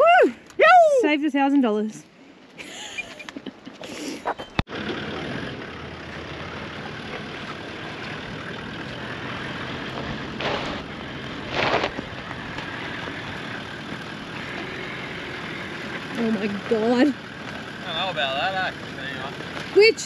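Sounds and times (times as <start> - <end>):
vehicle engine running: 4.4 - 20.0.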